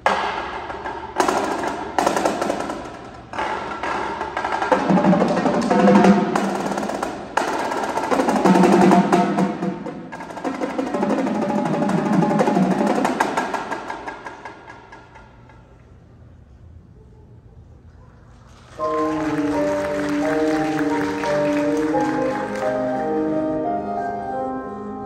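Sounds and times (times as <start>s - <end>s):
drum rolls and hits: 0.0s - 15.6s.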